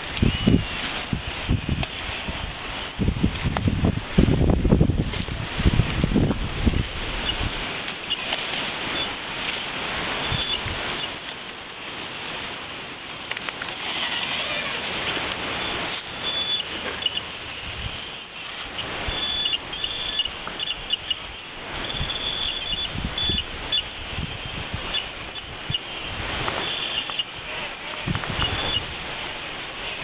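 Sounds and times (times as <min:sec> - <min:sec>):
outdoor hiss: 0:00.0 - 0:30.0
toy car motor whining: 0:13.7 - 0:14.9.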